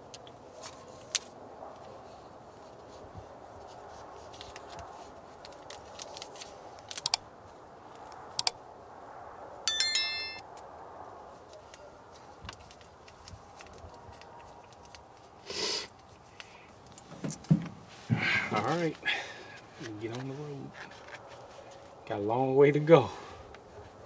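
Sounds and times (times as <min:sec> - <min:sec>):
notification bell chime: 0:09.7 - 0:10.4.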